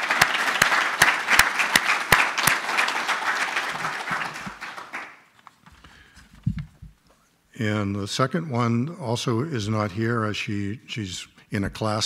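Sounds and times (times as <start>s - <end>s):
audience applauding: 0.0s - 5.3s
sharp close claps: 0.0s - 5.3s.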